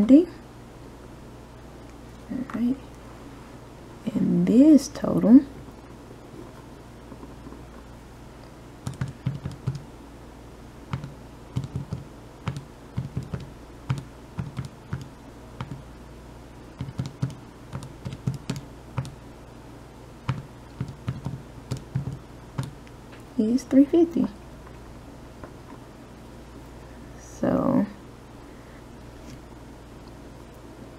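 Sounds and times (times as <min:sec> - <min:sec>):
calculator keys tapping: 0:08.8 - 0:09.8, 0:10.9 - 0:15.8, 0:16.8 - 0:19.2, 0:20.3 - 0:22.8.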